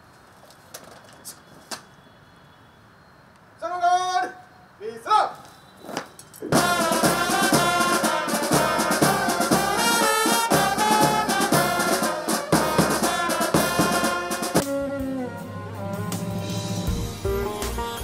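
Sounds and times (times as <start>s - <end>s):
brass band playing: 6.6s - 18.0s
quiet instrumental music: 13.8s - 18.0s.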